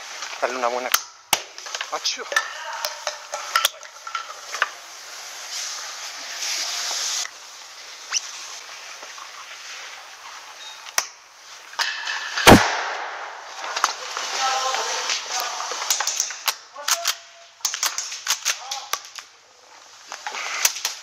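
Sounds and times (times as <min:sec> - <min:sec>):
hiss: 0:02.8 - 0:10.6, 0:19.8 - 0:21.0
loud bang: 0:12.4 - 0:13.6.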